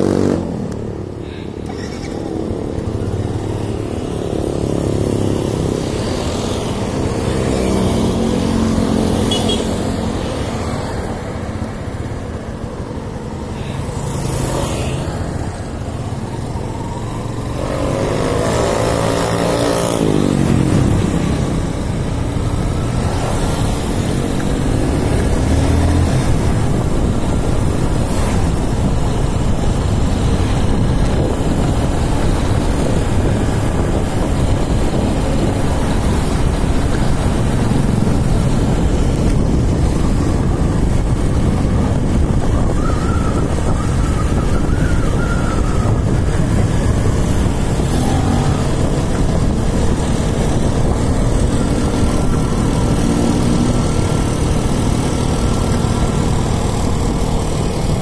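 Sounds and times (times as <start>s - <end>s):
wind rushing on microphone: 0.0s - 58.0s
motorcycle engine running: 16.2s - 58.0s.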